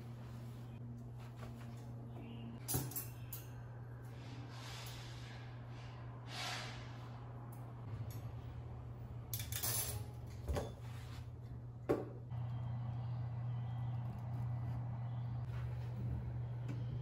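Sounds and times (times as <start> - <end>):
wire dish rack clinking: 2.6 - 3.6, 9.3 - 10.7.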